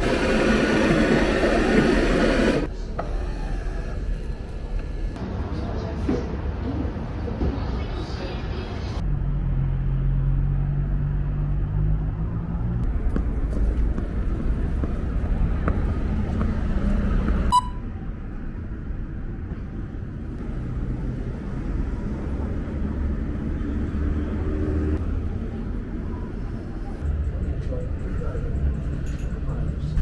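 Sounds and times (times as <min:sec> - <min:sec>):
city street traffic: 0:00.0 - 0:30.0.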